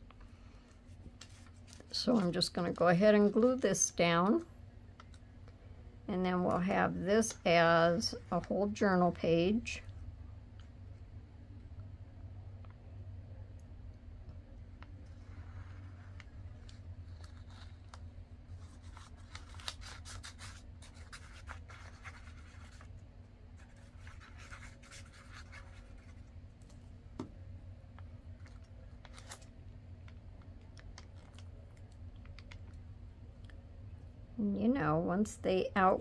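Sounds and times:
paper rustling and scratching: 0:00.9 - 0:02.3, 0:14.8 - 0:23.0, 0:23.6 - 0:26.3.

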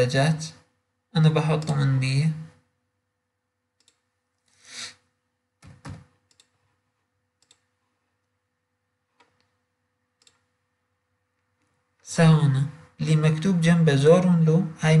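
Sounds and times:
keyboard and mouse clicks: 0:03.8 - 0:04.6, 0:05.6 - 0:06.8, 0:07.4 - 0:07.8, 0:09.1 - 0:09.6, 0:10.2 - 0:10.6.

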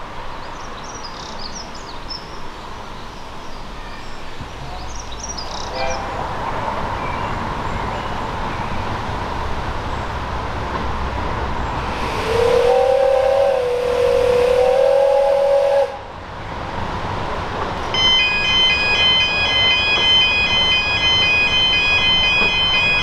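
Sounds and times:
rush of steam: 0:11.4 - 0:16.9
steam whistle blast: 0:11.9 - 0:16.1.

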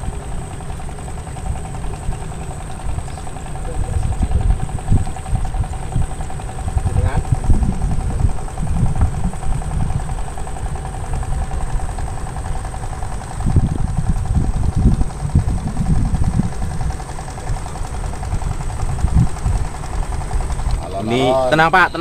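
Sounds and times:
boat engine running: 0:00.0 - 0:22.0.

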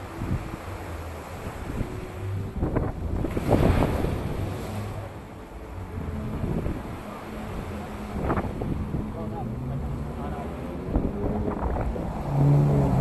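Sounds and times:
wind buffeting microphone: 0:00.0 - 0:05.1, 0:05.7 - 0:13.0
waves breaking over rocks: 0:00.0 - 0:13.0
traffic engine hum: 0:04.4 - 0:13.0.

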